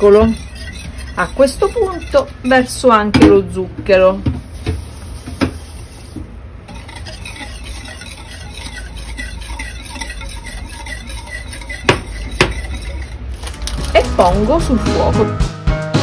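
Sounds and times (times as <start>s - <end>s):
whisk swishing in liquid: 0.0s - 3.0s, 6.6s - 14.6s
whisk wires clinking on pot: 0.0s - 3.0s, 6.6s - 14.6s.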